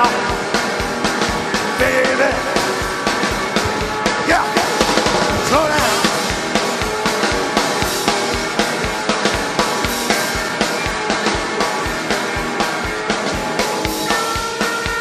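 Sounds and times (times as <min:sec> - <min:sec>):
electric guitar: 0:00.0 - 0:15.0
drum kit fast beat: 0:00.9 - 0:14.8.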